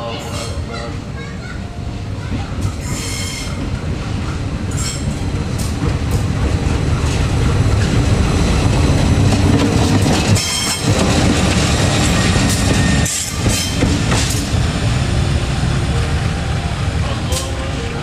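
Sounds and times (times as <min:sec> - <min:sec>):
wheels rumbling on rails: 0:00.4 - 0:18.0
wheels clicking over rail joints: 0:02.3 - 0:08.3, 0:09.2 - 0:14.6
high wheel squeals: 0:02.8 - 0:03.6, 0:11.8 - 0:13.8
locomotive engine drone: 0:03.4 - 0:18.0.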